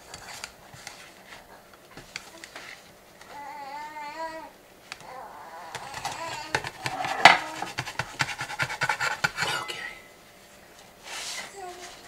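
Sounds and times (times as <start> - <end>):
metal spatula scraping cake pan: 5.9 - 9.8.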